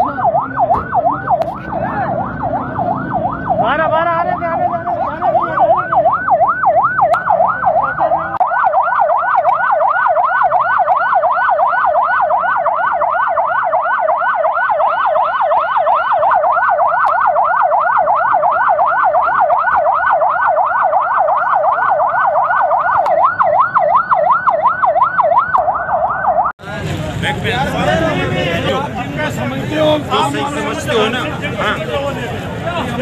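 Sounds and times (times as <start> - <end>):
ambulance siren yelping: 0.0 - 26.6.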